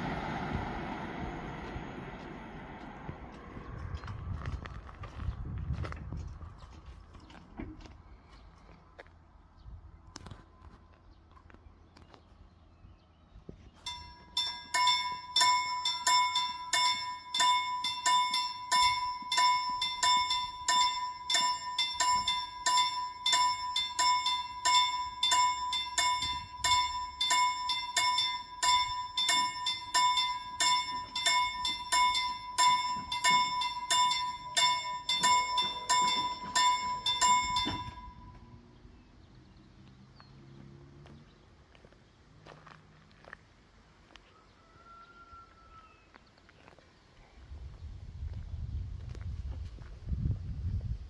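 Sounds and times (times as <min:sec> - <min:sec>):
level crossing warning bell ringing: 0:13.8 - 0:38.6.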